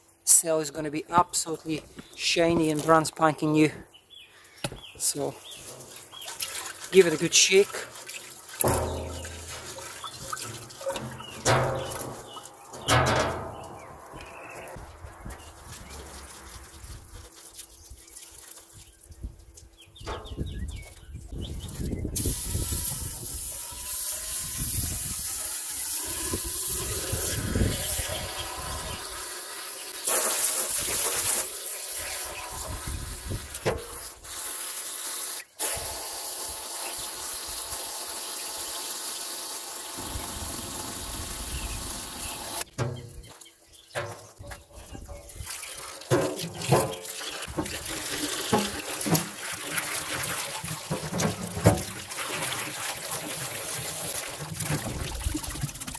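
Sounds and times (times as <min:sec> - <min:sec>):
water splashing into metal tub: 0:05.2 - 0:14.8, 0:24.0 - 0:34.3, 0:39.9 - 0:43.3, 0:44.0 - 0:55.9
hose nozzle spraying water: 0:05.6 - 0:14.3, 0:22.2 - 0:43.0, 0:45.6 - 0:55.8.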